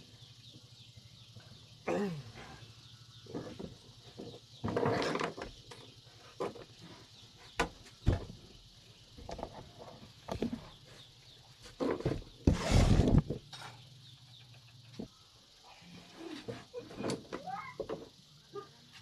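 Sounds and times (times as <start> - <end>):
scraping rustle: 3.3 - 8.0, 9.2 - 13.8, 15.9 - 18.1.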